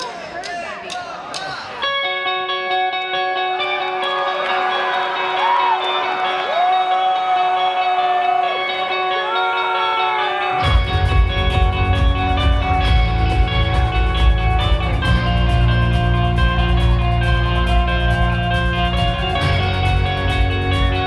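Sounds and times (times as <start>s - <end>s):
electric guitars bending notes: 1.8s - 21.0s
drums and bass: 10.6s - 21.0s.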